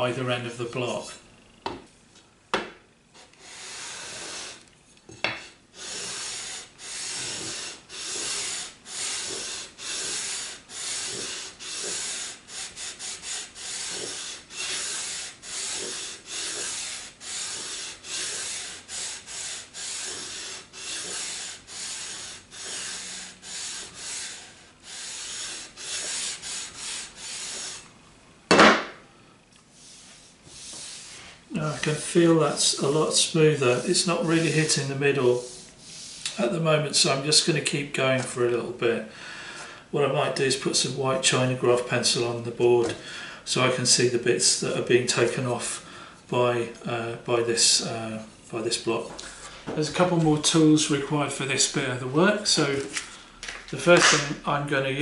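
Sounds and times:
sanding block rasping on wood: 3.4s - 4.6s, 5.8s - 27.9s, 29.8s - 36.4s.

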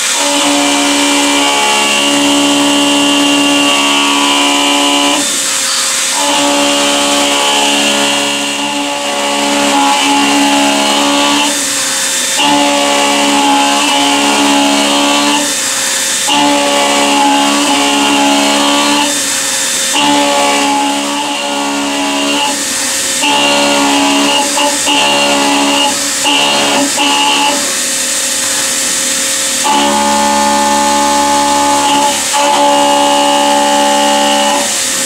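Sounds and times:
milling machine cutting metal whine: 0.0s - 35.0s.

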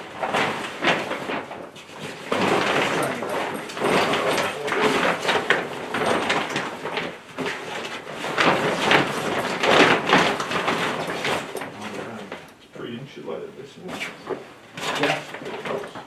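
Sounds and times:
tent fabric rustling and crinkling: 0.0s - 12.4s.

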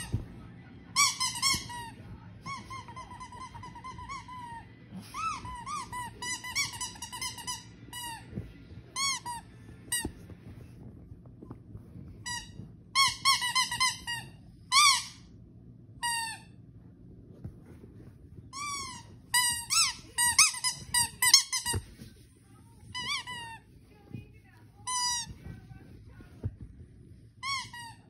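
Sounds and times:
squeaky dog toy squeaking: 1.0s - 8.2s, 12.3s - 15.3s, 18.5s - 21.8s, 27.4s - 28.0s.

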